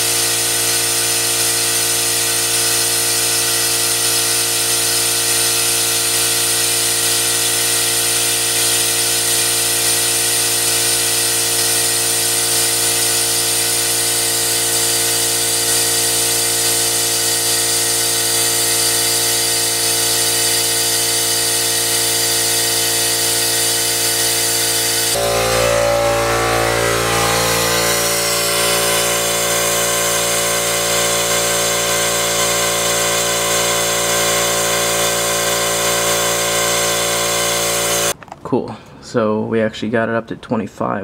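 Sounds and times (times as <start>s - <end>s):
compressed air rushing: 20.3s - 38.1s.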